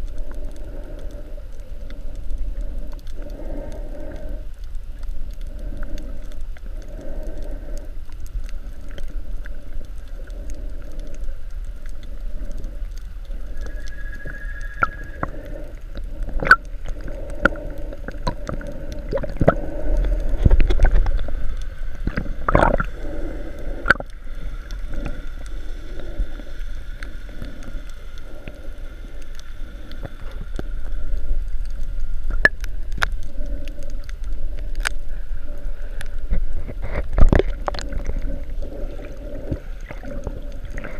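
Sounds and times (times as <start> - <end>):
muffled underwater wash: 0.0 - 40.9
water gushing: 12.1 - 28.6.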